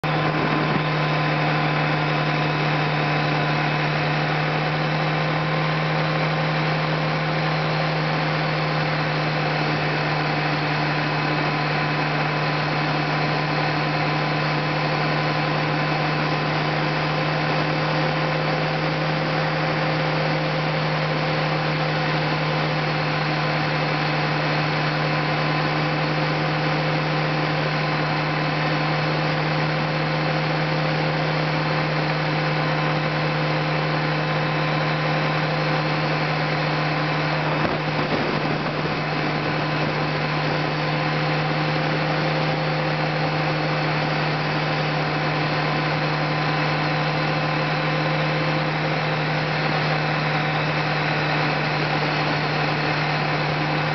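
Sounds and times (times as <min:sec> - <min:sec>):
tyre road noise: 0:00.0 - 0:03.2, 0:35.6 - 0:44.4
vehicle engine drone: 0:00.0 - 0:53.9.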